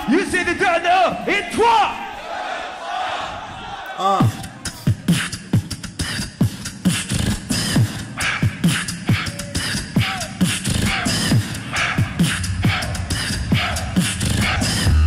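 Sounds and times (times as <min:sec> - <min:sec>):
beatboxing: 0:04.0 - 0:15.0.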